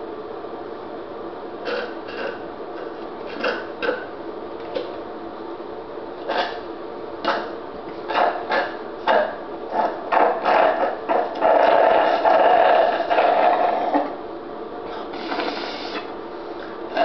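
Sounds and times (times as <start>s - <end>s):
slurping through a straw: 1.7s - 4.0s, 6.3s - 6.6s, 15.0s - 16.1s.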